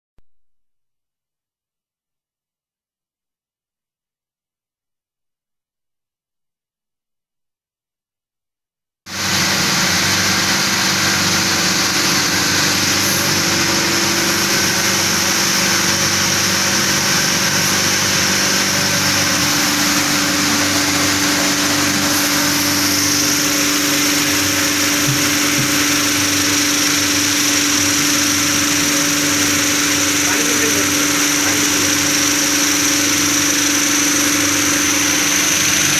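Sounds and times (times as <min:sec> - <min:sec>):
vibratory motor low hum: 0:09.1 - 0:35.9.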